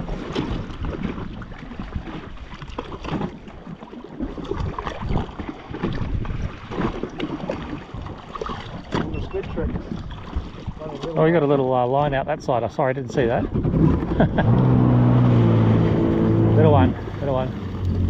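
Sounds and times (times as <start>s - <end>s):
water lapping against hull: 0.0s - 18.0s
wind buffeting microphone: 4.1s - 18.0s.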